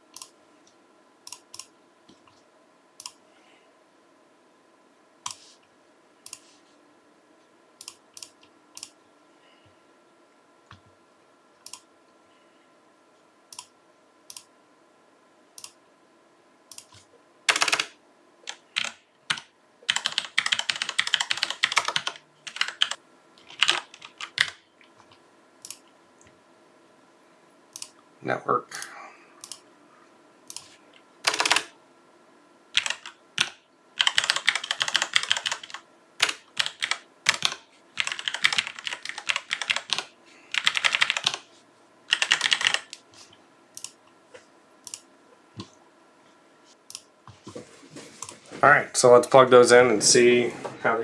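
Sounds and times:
rapid keyboard typing: 0:17.5 - 0:25.8, 0:30.5 - 0:31.7, 0:32.8 - 0:41.5, 0:42.1 - 0:43.0.

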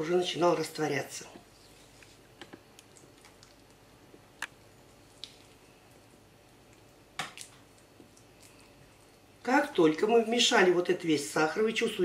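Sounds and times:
spatula squishing thick icing: 0:07.2 - 0:10.9.

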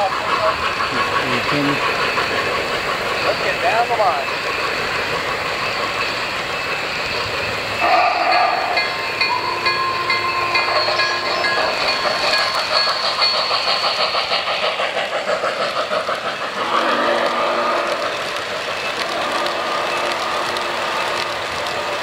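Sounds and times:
model train steam chuffing: 0:00.0 - 0:22.0
wheels rolling on track: 0:00.0 - 0:22.0.

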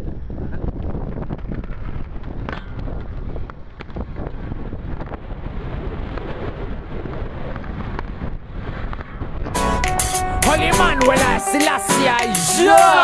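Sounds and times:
wind buffeting microphone: 0:00.0 - 0:11.4.

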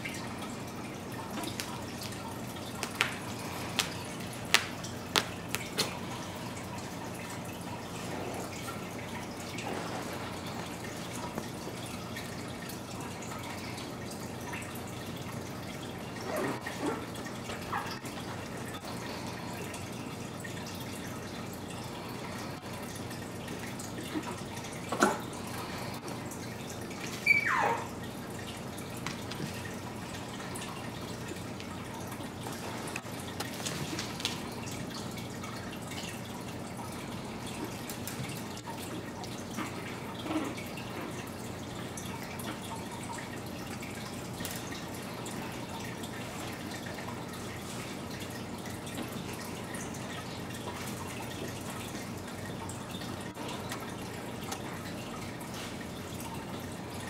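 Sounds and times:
steady room hiss: 0:00.0 - 0:57.0
puppies squeaking and yelping: 0:27.2 - 0:28.0.

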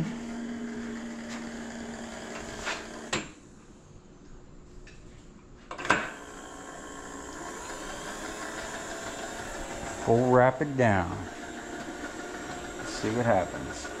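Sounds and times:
milling machine motor humming: 0:00.0 - 0:03.2, 0:06.1 - 0:14.0.

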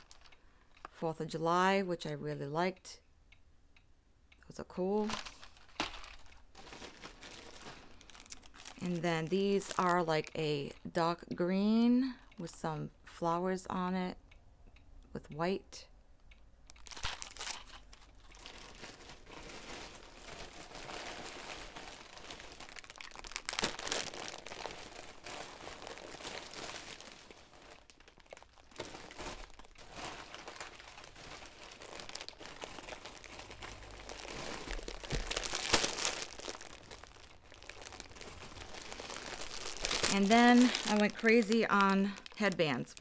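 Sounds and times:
bags and packaging crinkling: 0:00.0 - 0:00.4, 0:05.0 - 0:10.4, 0:16.7 - 0:43.0.

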